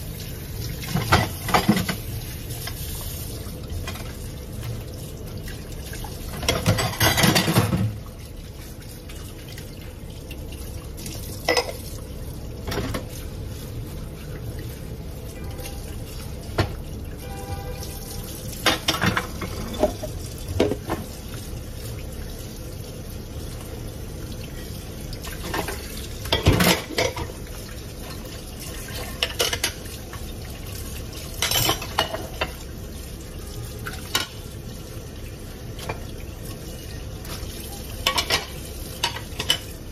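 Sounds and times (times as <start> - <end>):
dishes clattering: 0.8 - 2.0, 6.3 - 8.0, 11.4 - 11.9, 18.6 - 21.1, 25.4 - 27.4, 31.4 - 32.6, 38.0 - 39.7.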